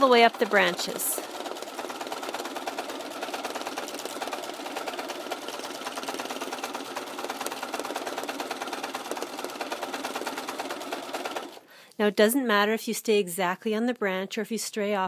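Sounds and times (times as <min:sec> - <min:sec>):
sewing machine stitching: 0:00.0 - 0:11.6.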